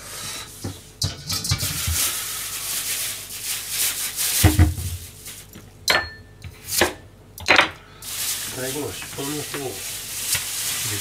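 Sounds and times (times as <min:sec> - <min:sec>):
plastic bag crinkling: 0:01.8 - 0:05.6, 0:08.0 - 0:11.0.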